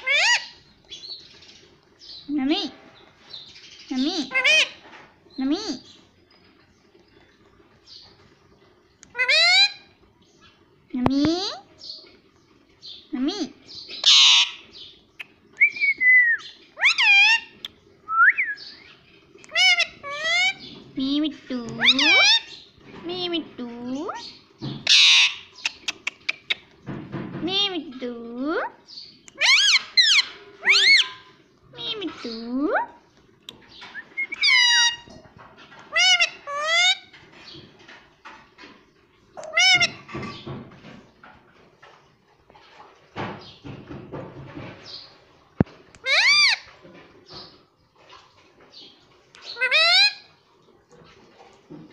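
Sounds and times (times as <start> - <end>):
parrot whistling and calling: 14.0 - 14.6, 15.6 - 17.5, 18.1 - 18.8, 21.8 - 22.5, 24.8 - 26.6, 29.3 - 31.3, 33.9 - 35.1, 35.9 - 37.1, 39.4 - 40.1, 46.0 - 46.6, 49.5 - 50.3.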